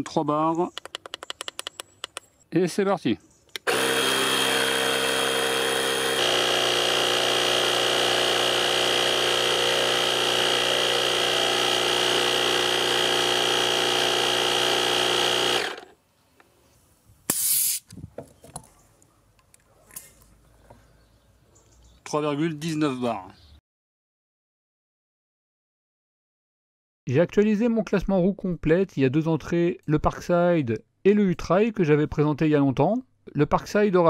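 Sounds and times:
air compressor humming: 0:03.6 - 0:15.9
short air hiss: 0:17.2 - 0:18.0.

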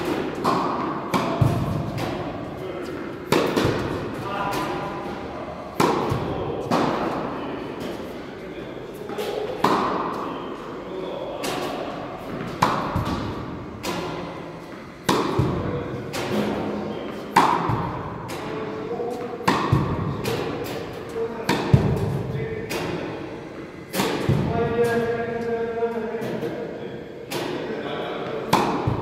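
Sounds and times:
tennis balls struck: 0:00.0 - 0:08.0, 0:09.0 - 0:10.2, 0:11.4 - 0:23.2, 0:23.9 - 0:25.0, 0:28.4 - 0:29.0.

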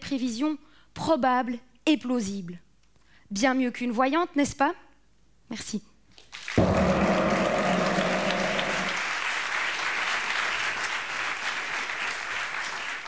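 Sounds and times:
audience applauding: 0:06.3 - 0:13.0
low tones: 0:06.6 - 0:09.2.

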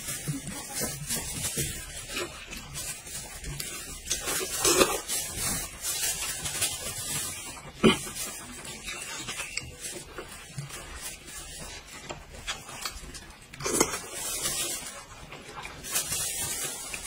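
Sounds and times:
chewing: 0:00.1 - 0:15.8.

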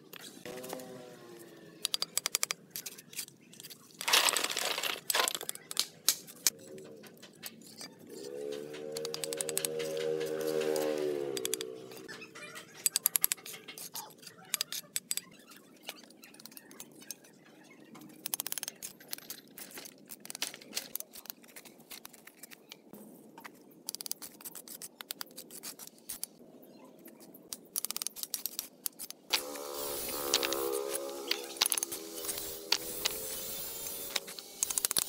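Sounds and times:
trowel scraping mortar: 0:28.0 - 0:35.0.

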